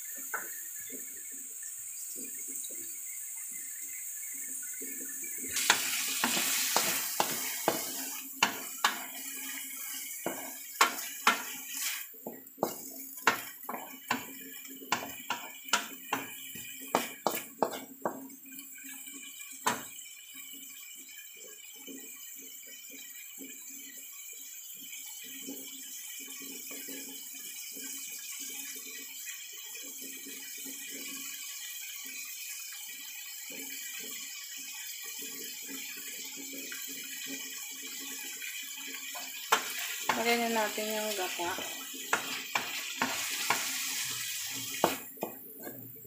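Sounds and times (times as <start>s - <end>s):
food sizzling in oil: 0.0s - 20.2s, 36.7s - 46.0s
wooden spatula scraping pan: 5.6s - 9.2s, 9.9s - 14.2s, 16.9s - 17.9s.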